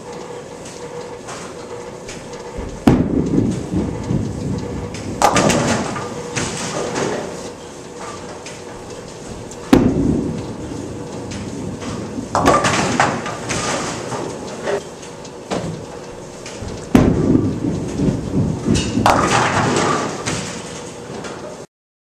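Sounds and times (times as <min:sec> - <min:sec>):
bowling balls rolling: 0:02.6 - 0:07.3, 0:09.6 - 0:14.8, 0:16.8 - 0:20.6
pins crashing: 0:12.3 - 0:14.1, 0:16.9 - 0:20.6.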